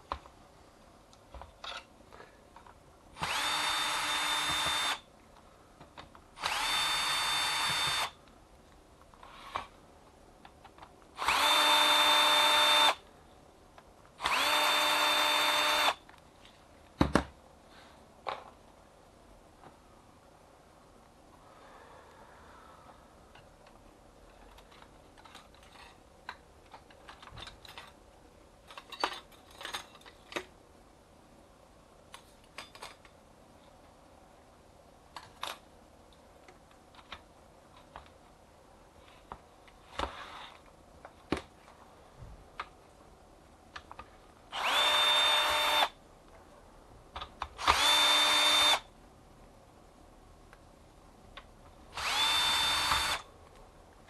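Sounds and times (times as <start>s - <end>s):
cordless drill whining: 3.2s - 5.0s, 6.4s - 8.2s, 11.2s - 13.0s, 14.2s - 16.0s, 44.6s - 45.9s, 47.6s - 48.8s, 52.0s - 53.2s.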